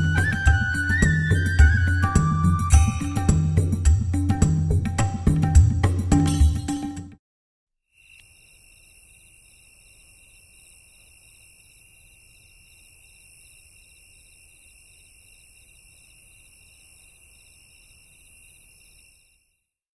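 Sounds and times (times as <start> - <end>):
constant high hiss: 8.0 - 19.6
insects chirping: 8.0 - 19.7.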